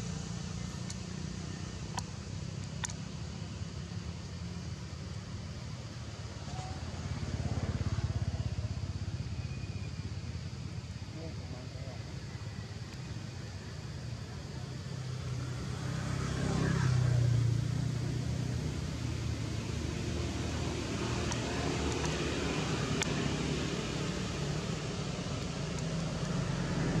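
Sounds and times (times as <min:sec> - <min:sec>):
vehicle engine rumble: 0:00.0 - 0:27.0
faint sharp clicks: 0:00.8 - 0:01.0, 0:01.9 - 0:03.0, 0:21.2 - 0:22.2, 0:23.0 - 0:23.2.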